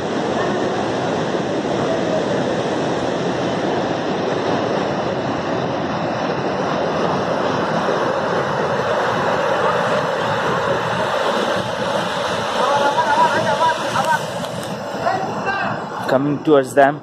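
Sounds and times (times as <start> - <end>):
river water rushing over rocks: 9.0 - 15.2.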